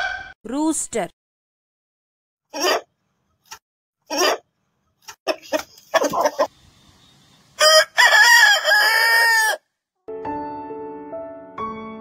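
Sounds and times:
chicken clucking: 2.5s - 6.5s
rooster crowing: 7.6s - 9.7s
soft piano music: 10.1s - 12.0s.

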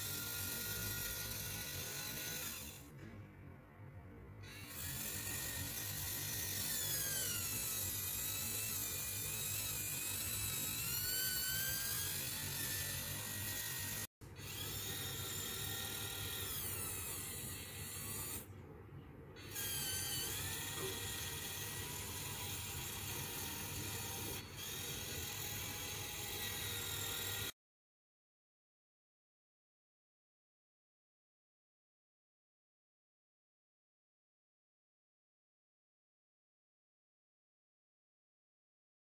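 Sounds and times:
small electric gear motors whining: 0.0s - 3.0s, 4.4s - 18.5s, 19.4s - 27.6s.

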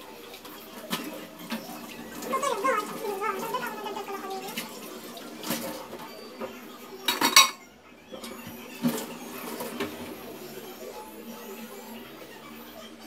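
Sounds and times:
dishes clinking and clattering: 0.3s - 10.3s.

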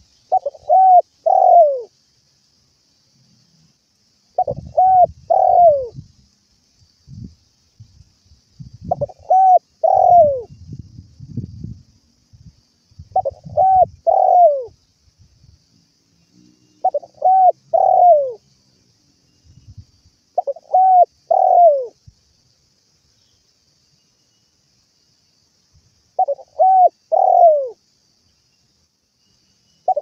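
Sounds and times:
dove cooing: 0.3s - 1.9s, 4.4s - 6.0s, 8.9s - 10.5s, 13.2s - 14.7s, 16.8s - 18.4s, 20.4s - 22.0s, 26.2s - 27.8s.

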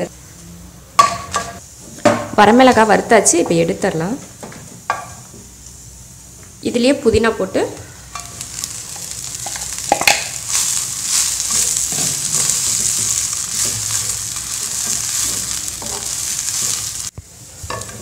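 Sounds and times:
leaves sizzling in hot oil: 4.8s - 18.0s
spatula tapping and scraping pan: 9.3s - 10.6s, 14.9s - 16.8s.

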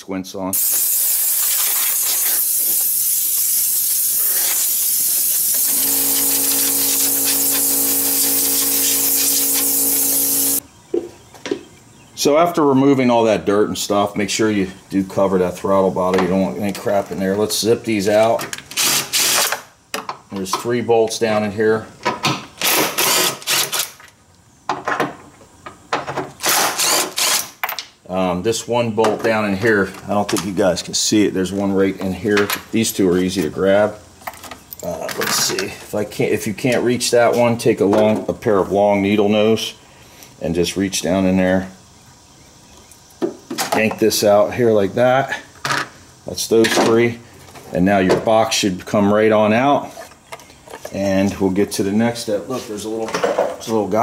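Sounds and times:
steady multi-tone hum: 0.5s - 23.5s
compressed air blow gun hissing: 0.6s - 10.6s.

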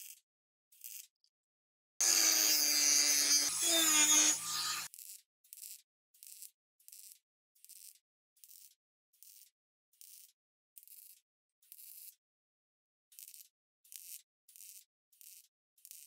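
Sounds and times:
hand tool scraping strokes: 2.0s - 4.9s
power tool running: 2.0s - 4.9s.

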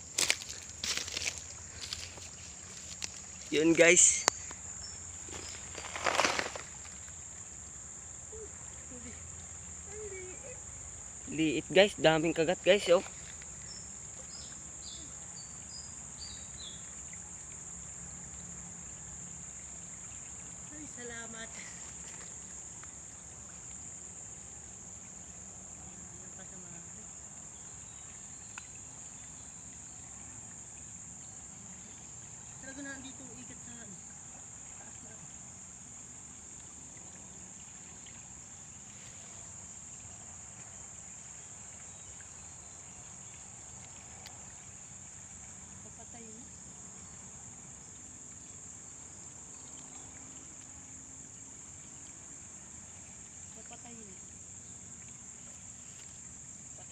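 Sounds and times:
high-pitched insect drone: 0.0s - 24.4s
high-pitched insect chorus: 0.0s - 56.9s.

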